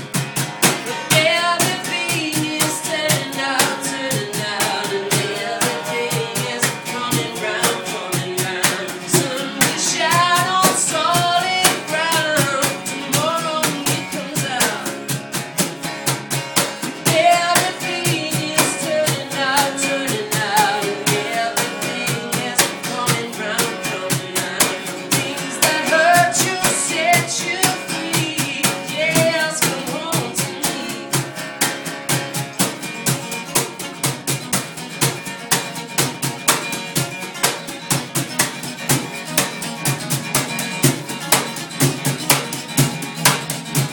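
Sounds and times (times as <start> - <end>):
acoustic guitar: 0.0 - 43.9
drum kit with rimshots: 0.0 - 43.9
man singing: 0.6 - 15.1, 17.0 - 31.3.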